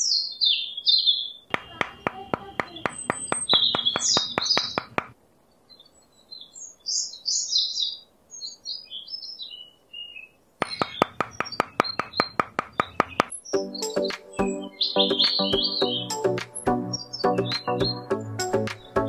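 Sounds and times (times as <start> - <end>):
small bird chirping: 0.0 - 18.1
small hammer tapping a nail: 1.5 - 5.1, 10.6 - 13.3.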